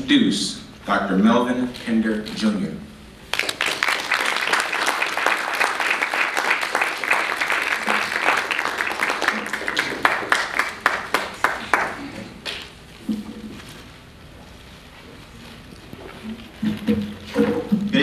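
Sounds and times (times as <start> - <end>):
audience applauding: 3.3 - 12.6.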